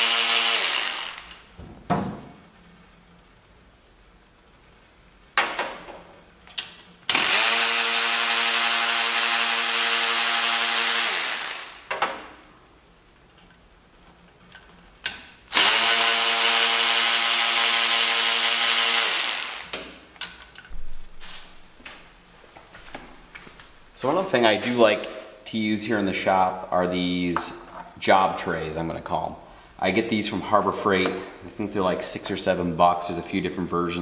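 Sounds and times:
electric ratchet running: 0:00.0 - 0:01.5, 0:07.1 - 0:11.9, 0:15.5 - 0:19.8.

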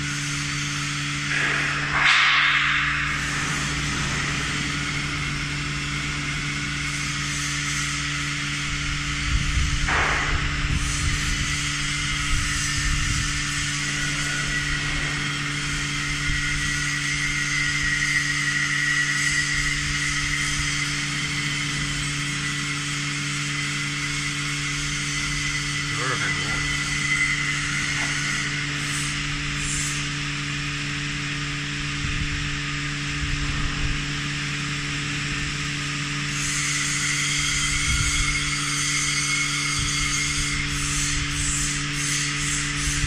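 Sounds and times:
mixer machinery humming: 0:02.8 - 0:38.0.

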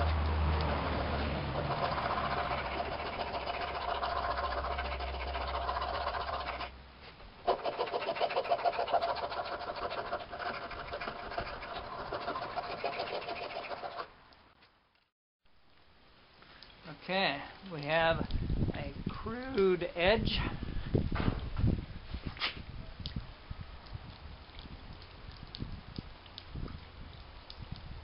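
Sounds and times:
hand file rasping on metal: 0:01.0 - 0:06.7, 0:07.4 - 0:14.1.

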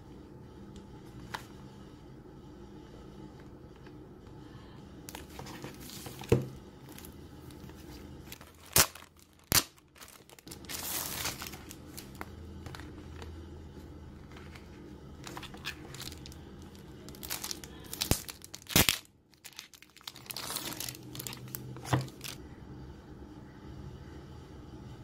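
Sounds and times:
plastic packaging crinkling: 0:05.1 - 0:13.4, 0:14.2 - 0:22.4.

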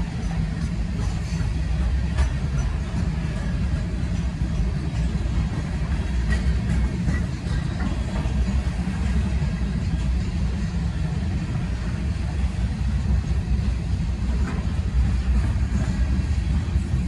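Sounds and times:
train clicks and clanks: 0:00.0 - 0:17.0
train wheels rumbling on rail: 0:00.0 - 0:17.0.

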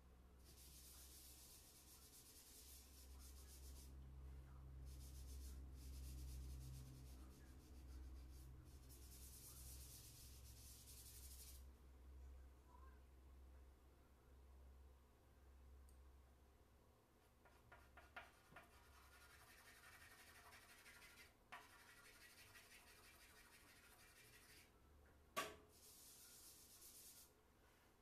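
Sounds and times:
charcoal scratching on paper: 0:00.4 - 0:04.0, 0:04.9 - 0:11.6, 0:17.4 - 0:24.7, 0:25.7 - 0:27.3.

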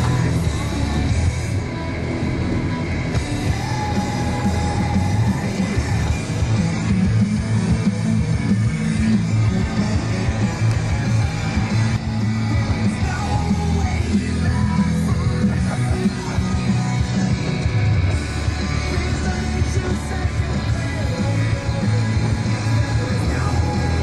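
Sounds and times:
loud rock music: 0:00.0 - 0:24.0
person yelling and singing: 0:12.7 - 0:17.3.

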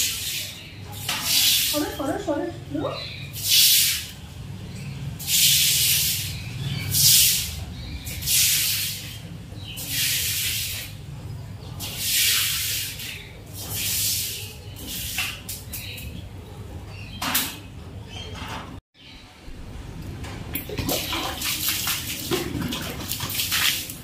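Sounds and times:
broom sweeping wet floor: 0:00.0 - 0:02.4, 0:03.3 - 0:04.2, 0:05.2 - 0:11.1, 0:11.8 - 0:16.0, 0:20.9 - 0:24.0.

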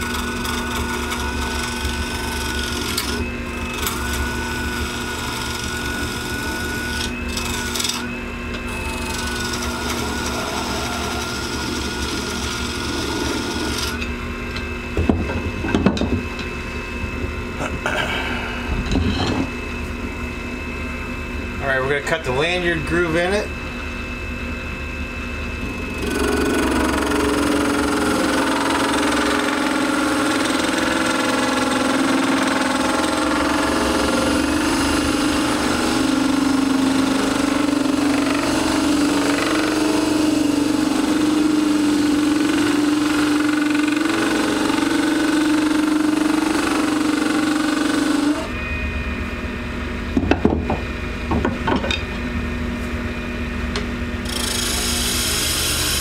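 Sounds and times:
chisel cutting on lathe: 0:00.0 - 0:14.1, 0:25.8 - 0:48.5, 0:54.2 - 0:56.0
lathe running: 0:00.0 - 0:17.8, 0:25.4 - 0:48.8, 0:53.7 - 0:56.0.

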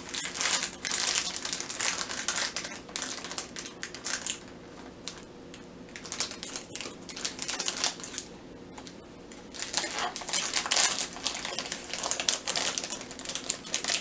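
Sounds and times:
plastic wrapper crinkling: 0:00.0 - 0:05.3, 0:05.9 - 0:14.0.

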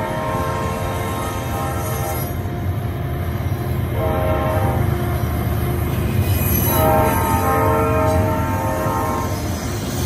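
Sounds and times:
locomotive horn: 0:00.0 - 0:02.4, 0:03.9 - 0:04.9, 0:06.7 - 0:09.5
train wheels rumbling on rail: 0:00.0 - 0:10.0.

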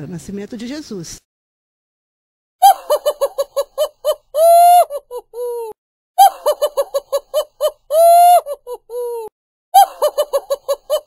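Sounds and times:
laughing sound effect: 0:02.6 - 0:11.0.

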